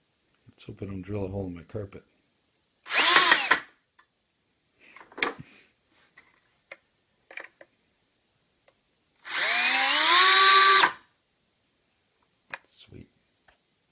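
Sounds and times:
cordless drill motor whining: 2.9s - 3.7s, 9.2s - 11.0s.

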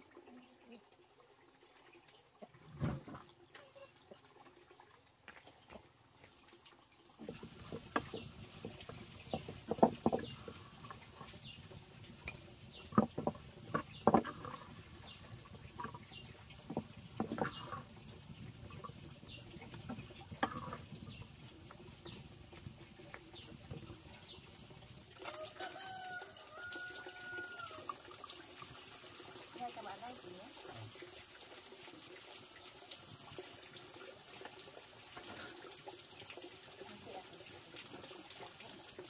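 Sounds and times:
wooden spatula scraping metal pan: 16.7s - 17.9s, 20.0s - 20.9s.

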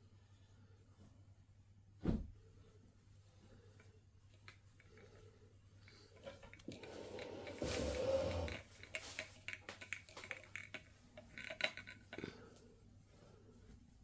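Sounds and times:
heavy curtain fabric rustling: 6.8s - 9.2s.

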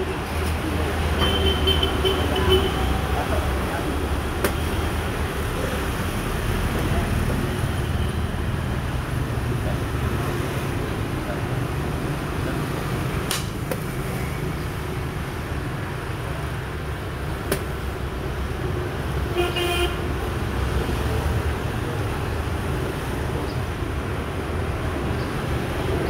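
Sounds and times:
street traffic rumble: 0.0s - 26.0s
vehicle horn toot: 19.4s - 20.0s.

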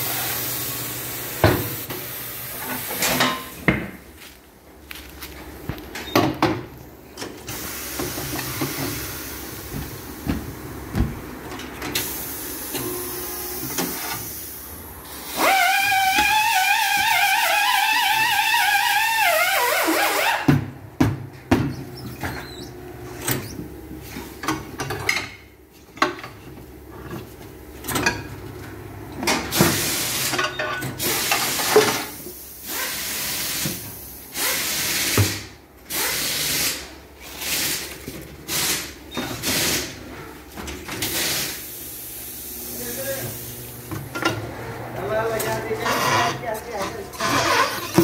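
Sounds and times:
bursts of hissing air: 12.0s - 17.7s, 31.0s - 37.9s, 41.0s - 43.6s.

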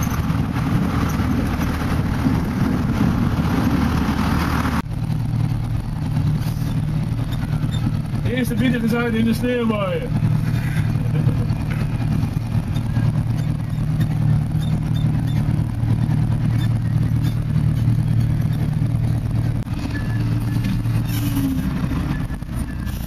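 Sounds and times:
tractor engine running under load: 0.0s - 23.0s.

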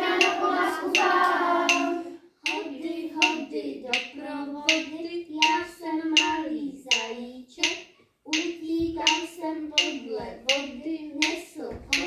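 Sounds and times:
hand claps on the beat: 0.0s - 2.6s
children singing together: 0.0s - 7.7s.

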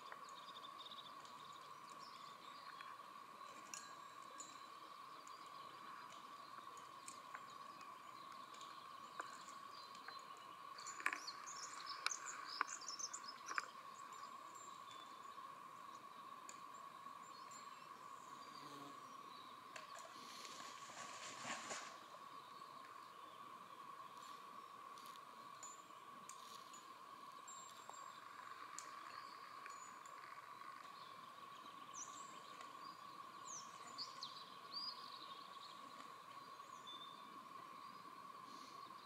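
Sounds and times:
small birds chirping: 0.0s - 20.8s, 21.4s - 39.0s
faint clicks: 1.1s - 15.2s, 15.9s - 16.7s, 27.6s - 31.0s.

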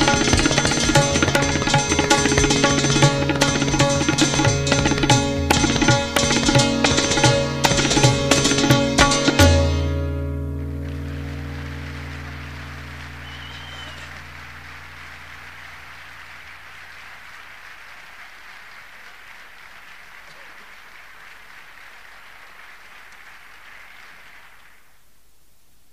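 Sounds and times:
audience applause: 0.0s - 5.2s, 10.8s - 25.0s
low music notes: 0.0s - 16.6s.

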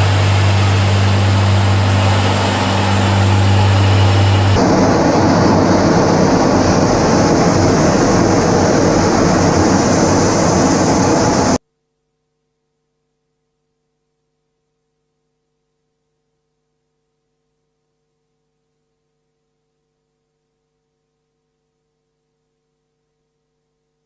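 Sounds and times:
aircraft in-flight roar: 0.0s - 11.6s
faint hum: 0.0s - 24.0s.

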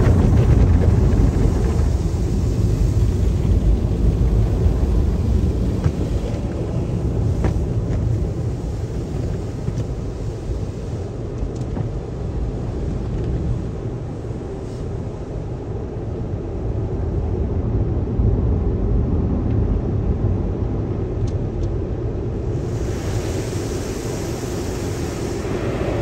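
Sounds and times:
car wash equipment rumbling: 0.0s - 26.0s
cloth strips rubbing on car: 4.5s - 15.3s.

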